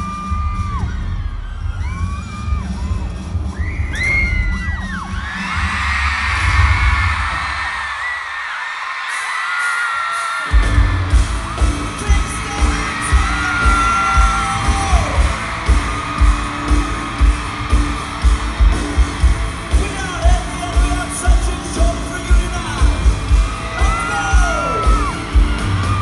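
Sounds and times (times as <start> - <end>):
live pop-rock band: 10.2 - 26.0.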